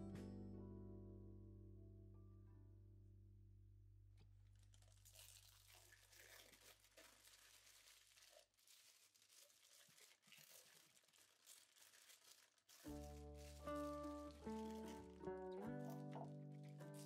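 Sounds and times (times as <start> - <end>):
background music: 0.0 - 2.0, 12.9 - 17.0
cling film crinkling: 4.4 - 17.0.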